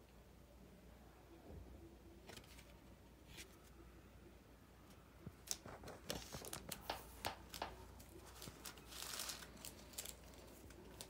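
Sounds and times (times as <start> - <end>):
crinkling rustle: 5.3 - 11.0
trading cards clicking and rustling: 5.4 - 11.0.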